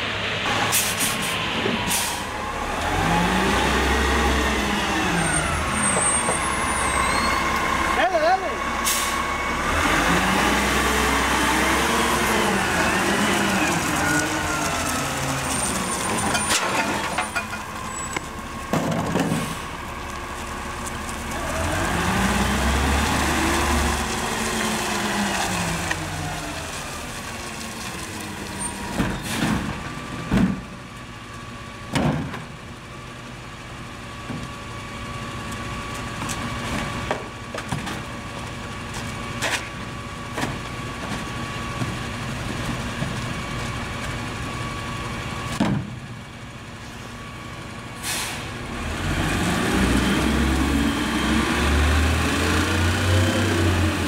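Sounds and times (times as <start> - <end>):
garbage truck diesel engine revving: 0.0 - 30.3, 47.7 - 54.0.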